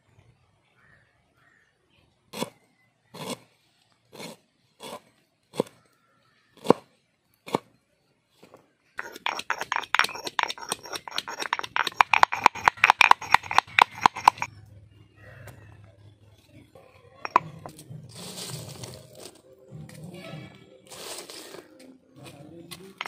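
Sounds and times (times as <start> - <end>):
stone pestle pounding in mortar: 9.0 - 14.5.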